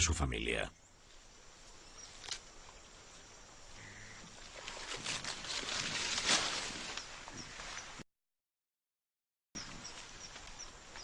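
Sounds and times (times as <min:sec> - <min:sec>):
foliage rustling and crackling: 0:01.0 - 0:08.0.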